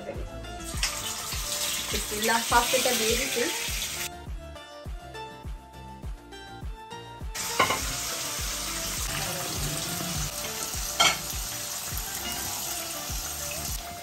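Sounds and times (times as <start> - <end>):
food sizzling in hot oil: 0.6 - 4.1, 7.4 - 14.0
spoon knocking on pan: 7.5 - 8.0.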